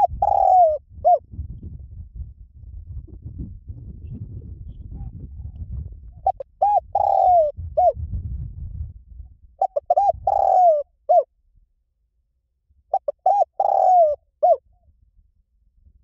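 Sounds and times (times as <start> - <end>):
dove cooing: 0.0 - 1.3, 6.2 - 8.0, 9.6 - 11.3, 12.9 - 14.6
low rumble: 0.8 - 6.3, 7.4 - 9.6.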